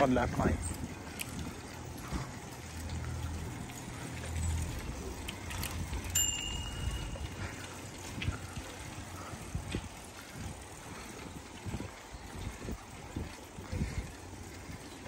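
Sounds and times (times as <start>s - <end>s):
bicycle clicks and rattles: 0.0s - 15.0s
bicycle tyres rumbling: 0.0s - 15.0s
bicycle bell ringing: 4.4s - 7.9s.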